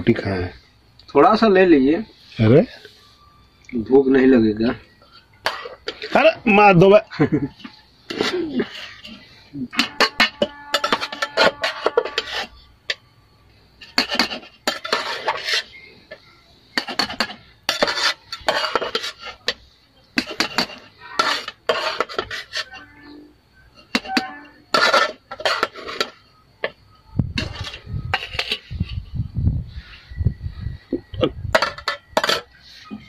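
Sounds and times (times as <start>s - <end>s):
metal spoon scraping pot: 5.0s - 6.4s, 7.5s - 13.0s, 13.8s - 26.8s, 27.4s - 29.0s, 31.5s - 33.0s.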